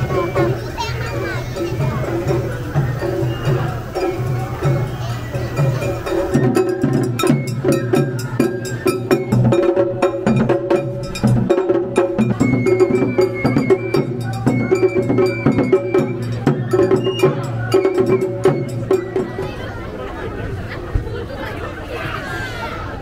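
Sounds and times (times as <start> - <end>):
drum strikes: 0.0 - 19.6
high melody line: 0.0 - 19.6
small metal gong clanging: 0.4 - 13.1.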